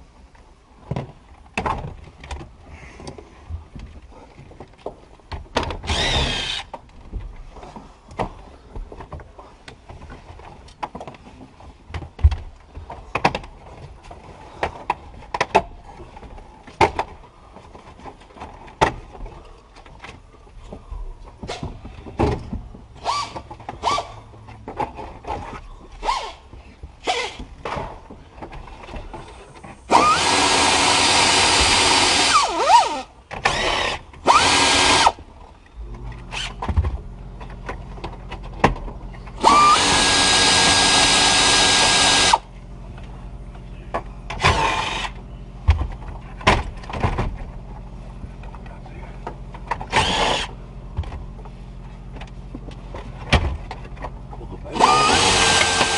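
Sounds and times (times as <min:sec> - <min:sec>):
cordless drill whining: 0:05.8 - 0:06.7, 0:29.9 - 0:35.2, 0:39.4 - 0:42.5, 0:44.4 - 0:45.2, 0:49.9 - 0:50.6, 0:54.7 - 0:55.9.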